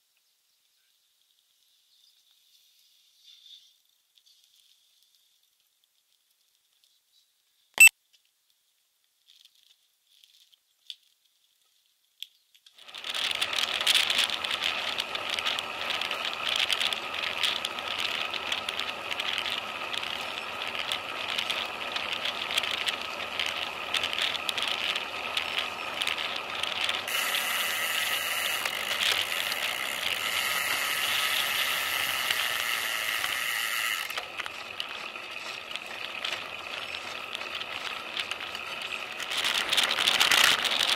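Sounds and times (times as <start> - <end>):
bike rattling on road: 12.8 - 40.9.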